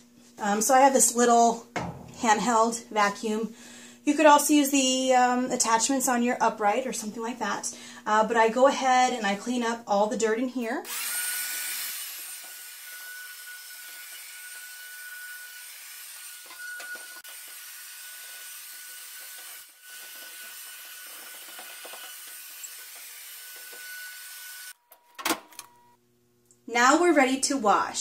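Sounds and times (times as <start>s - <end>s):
sharp knocks: 1.8s - 2.4s
handheld vacuum whine: 10.8s - 24.8s.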